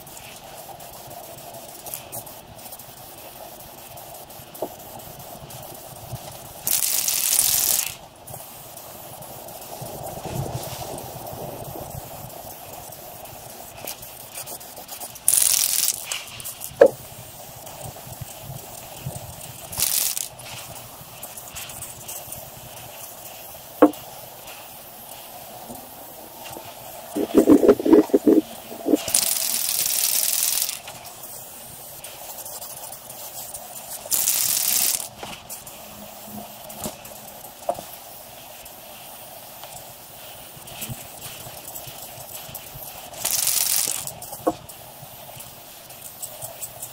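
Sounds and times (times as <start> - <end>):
spray paint can hissing: 0.0 - 46.9
steady background noise: 0.0 - 46.9.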